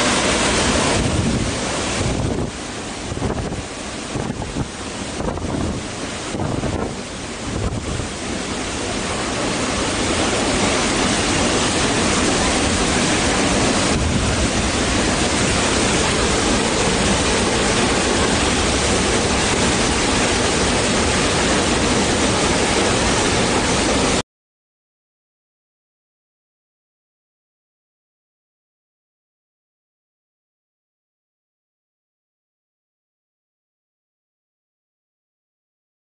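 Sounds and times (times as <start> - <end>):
waterfall rushing: 0.0 - 24.2.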